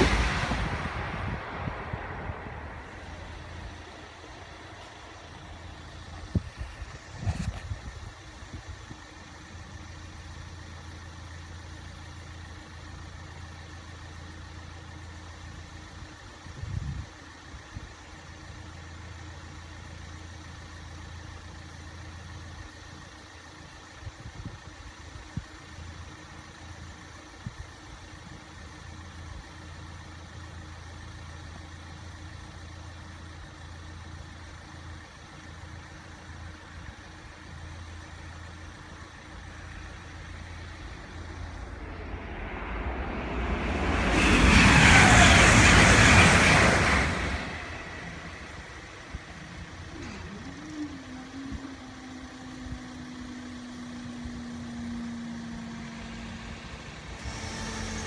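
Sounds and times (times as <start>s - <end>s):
passing train: 0.0s - 17.8s, 32.2s - 58.0s
car engine idling: 0.0s - 58.0s.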